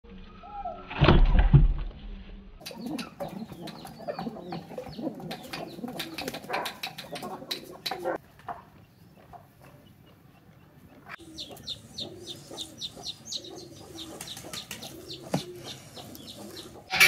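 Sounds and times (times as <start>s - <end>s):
pigeons cooing: 2.6s - 8.2s, 11.0s - 17.0s
chickens clucking: 2.6s - 17.0s.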